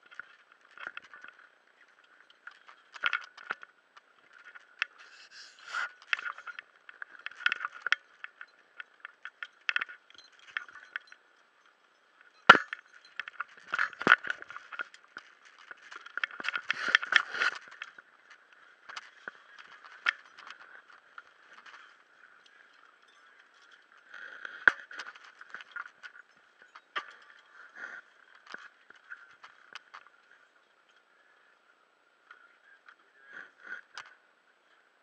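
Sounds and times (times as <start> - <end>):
scuba gear clicks and knocks: 0.0 - 5.2, 5.9 - 11.3, 12.2 - 30.2.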